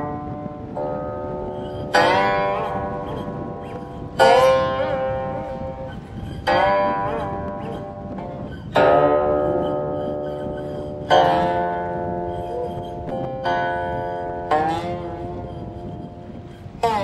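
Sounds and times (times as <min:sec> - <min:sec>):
plucked zither notes: 0:00.0 - 0:17.0.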